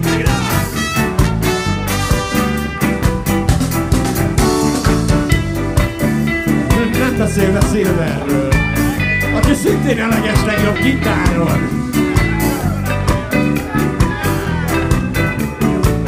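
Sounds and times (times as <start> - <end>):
live ska band playing: 0.0 - 16.0.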